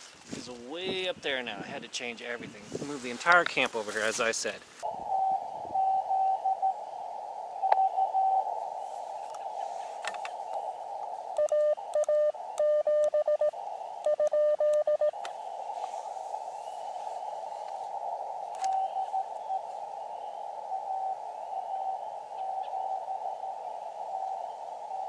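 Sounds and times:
radio band noise hiss: 8.8s - 12.8s, 15.1s - 19.8s
faint morse code: 11.4s - 15.2s
morse code sidetone beeps: 11.4s - 15.2s.

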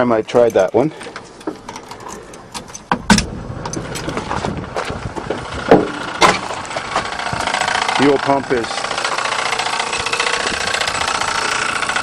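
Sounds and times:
engine cranking by starter: 5.0s - 12.0s.

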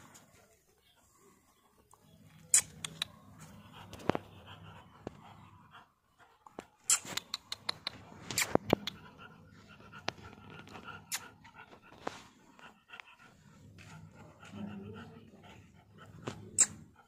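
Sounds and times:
puppies breathing and moving: 0.0s - 17.0s
sharp clicks and taps: 6.4s - 9.2s.

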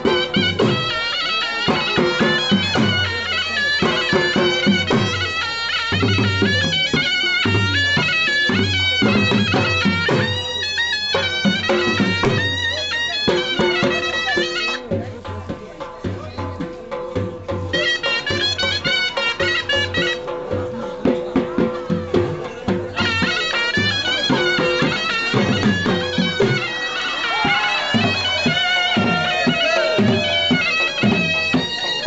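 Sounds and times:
reedy wind instrument melody: 0.0s - 14.9s, 17.7s - 20.5s, 21.8s - 32.0s
drum beats: 0.0s - 32.0s.

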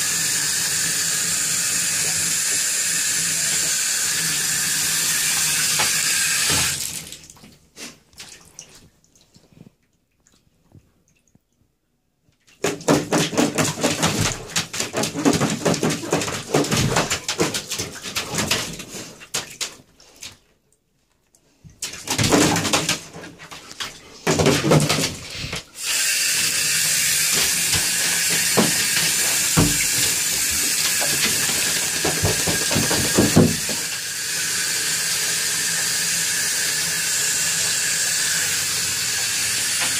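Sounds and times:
water running: 0.0s - 9.4s, 22.0s - 39.9s
dog claws scratching in bathtub: 12.6s - 20.4s, 26.6s - 33.9s.

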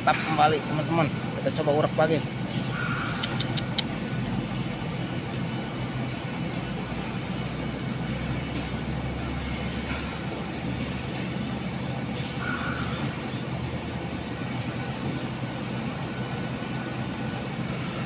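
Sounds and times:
low outdoor rumble: 0.0s - 18.0s
faint clicks: 3.2s - 3.9s.

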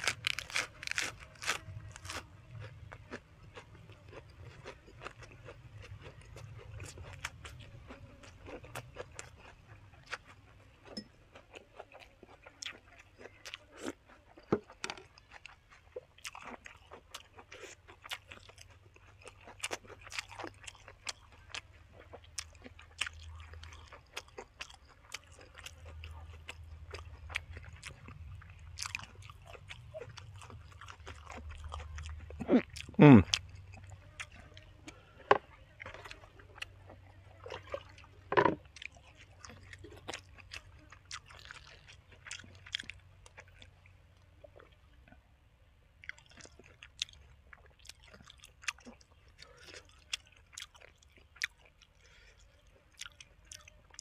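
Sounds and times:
person chewing crunchy food: 0.0s - 45.2s, 46.0s - 54.0s.

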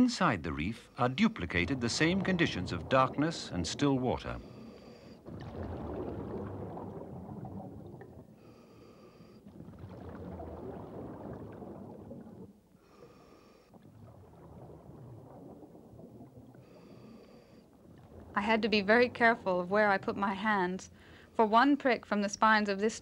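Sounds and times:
exhaled bubbles rushing: 1.0s - 8.6s, 9.2s - 13.0s, 13.7s - 21.1s.

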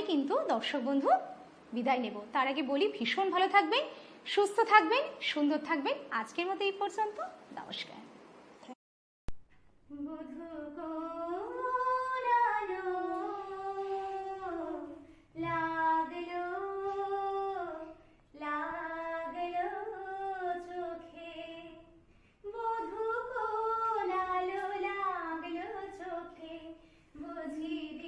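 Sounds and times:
woman singing slow song: 9.9s - 21.9s.

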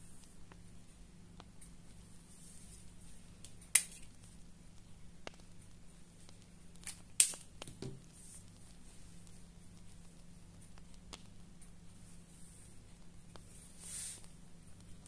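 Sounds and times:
marker set down on table: 7.7s - 8.0s.

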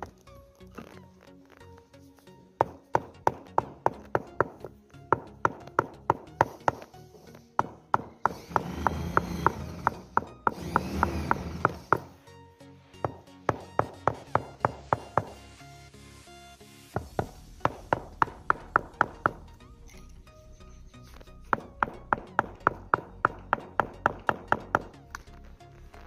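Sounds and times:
rubber mallet tapping stone: 2.6s - 7.0s, 7.6s - 12.1s, 13.0s - 15.4s, 17.0s - 19.6s, 21.5s - 25.3s.

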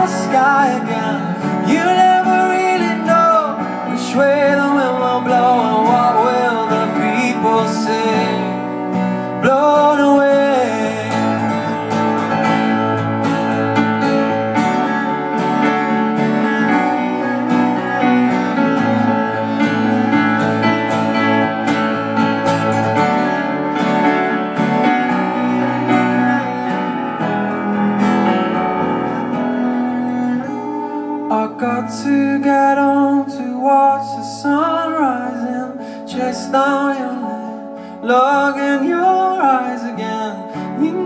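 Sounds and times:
acoustic guitar strumming: 0.0s - 41.0s.

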